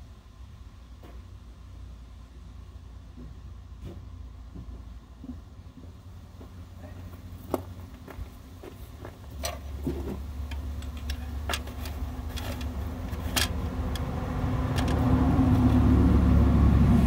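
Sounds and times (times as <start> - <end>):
low engine drone: 4.3 - 17.0
sharp clicks and knocks: 7.5 - 15.8.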